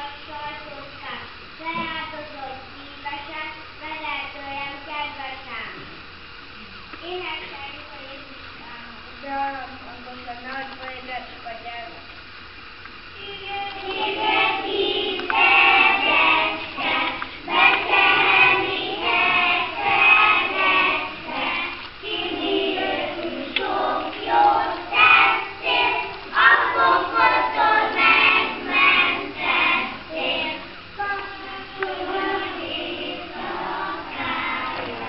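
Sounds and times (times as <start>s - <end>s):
children singing in unison: 13.2s - 35.0s.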